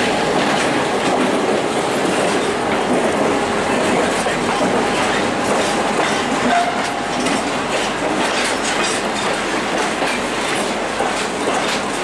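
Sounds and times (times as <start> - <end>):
freight train wheels clattering: 0.0 - 12.0.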